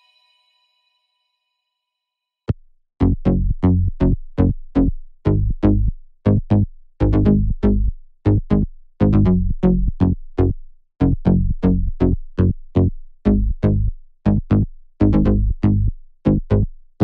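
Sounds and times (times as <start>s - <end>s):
plucked synth bass notes: 3.0s - 16.7s.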